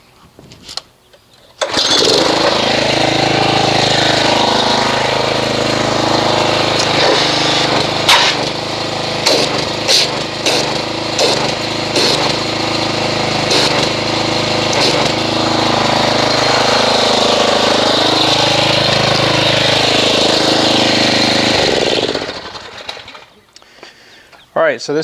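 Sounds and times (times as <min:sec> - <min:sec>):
water jet churning into bucket: 0:01.6 - 0:05.6
pressure washer running: 0:01.6 - 0:23.4.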